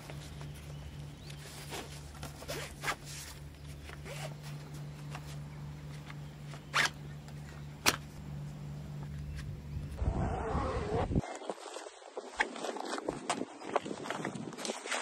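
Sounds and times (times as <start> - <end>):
steady low hum: 0.0 - 11.2
zipper being pulled: 1.7 - 4.5.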